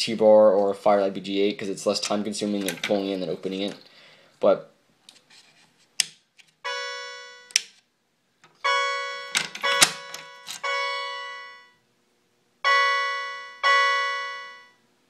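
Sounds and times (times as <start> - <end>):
fire alarm chime tones: 6.6 - 7.6, 8.6 - 11.8, 12.6 - 14.8.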